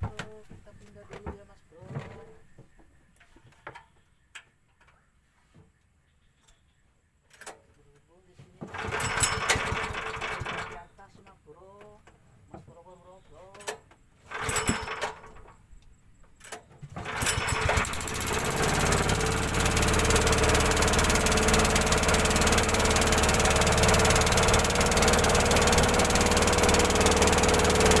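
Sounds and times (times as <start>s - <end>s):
starter cord tugs: 8.6s - 10.9s, 13.5s - 15.6s, 16.9s - 28.0s
small boat engine running: 8.7s - 10.8s, 14.3s - 15.3s, 17.0s - 28.0s.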